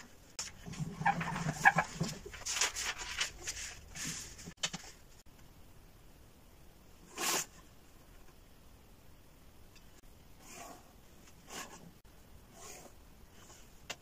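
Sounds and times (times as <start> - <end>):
paper rustling and sliding: 0.4 - 5.2.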